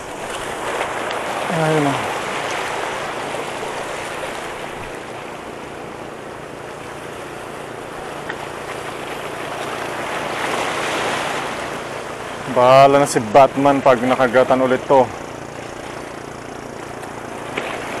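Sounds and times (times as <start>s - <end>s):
waves washing against rocks: 0.0s - 18.0s.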